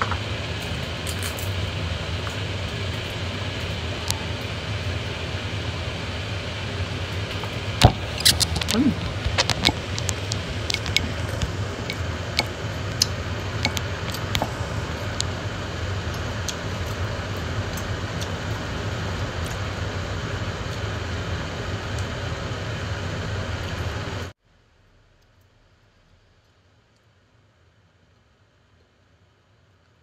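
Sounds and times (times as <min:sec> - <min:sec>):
machine hum: 0:00.0 - 0:30.0
person eating with fingers: 0:07.8 - 0:14.9.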